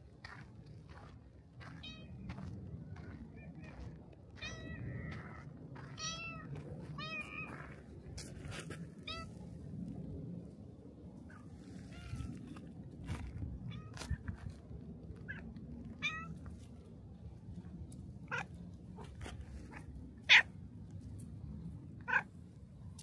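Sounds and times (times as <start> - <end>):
cat meowing: 16.0 - 16.3, 22.1 - 22.3.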